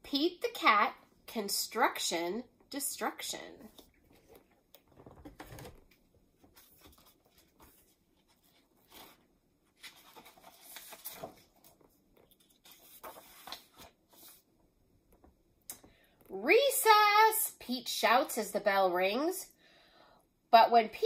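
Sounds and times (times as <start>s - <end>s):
book pages rustling: 3.6s - 14.5s.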